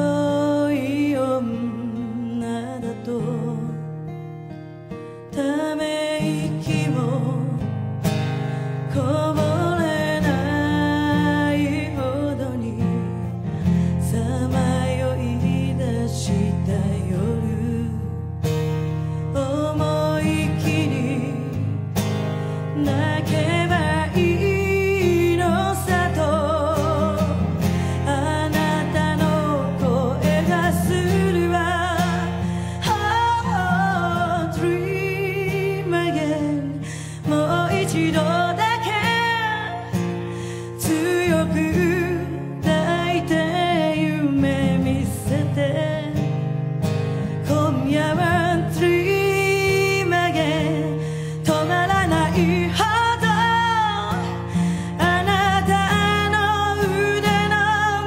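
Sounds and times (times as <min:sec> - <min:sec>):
acoustic guitar chords: 0:00.0 - 0:58.0
woman singing a ballad: 0:00.0 - 0:58.0.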